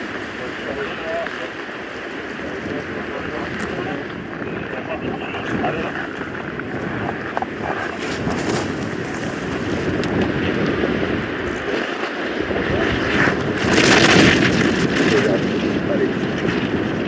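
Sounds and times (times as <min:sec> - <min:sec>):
wind rush: 0:00.0 - 0:17.0
skis scraping over icy snow: 0:05.6 - 0:15.6.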